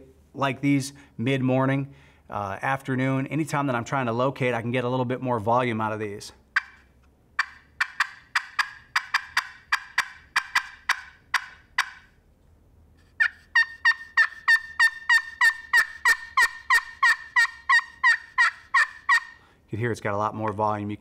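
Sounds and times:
turkey friction call notes: 6.5 - 12.2, 13.0 - 19.5.

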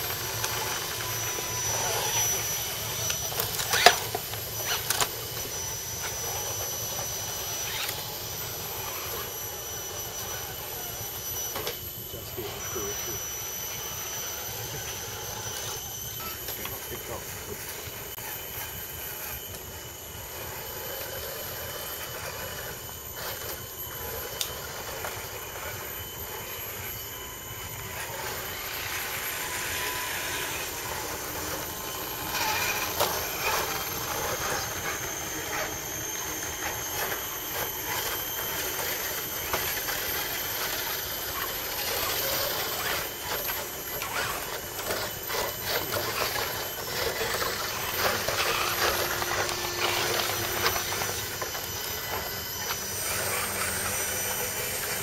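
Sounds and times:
electric motors whining: 0.0 - 55.0.

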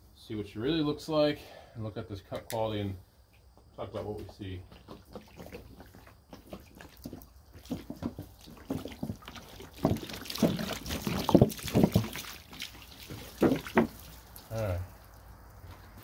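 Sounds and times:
water splashing onto wood: 4.2 - 16.0.

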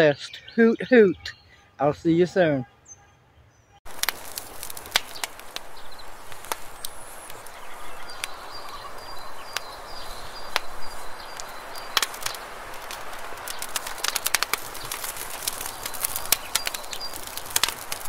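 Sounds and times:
wood fire crackling: 3.8 - 18.0.

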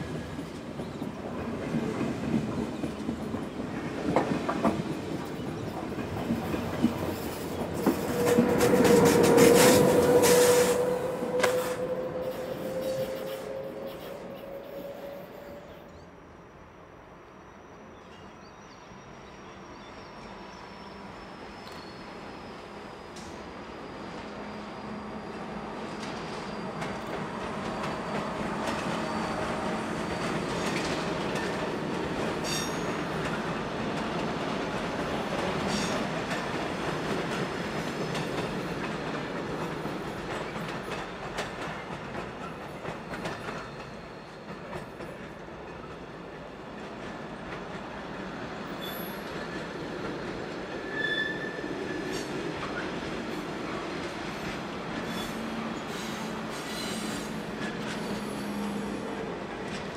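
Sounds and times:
train wheel rumble: 0.0 - 15.8, 24.2 - 59.9
clacks over rail joints: 0.4 - 10.4, 30.1 - 46.2
wheel squeals: 21.5 - 31.6, 48.8 - 49.4, 50.8 - 52.3, 55.0 - 59.1.

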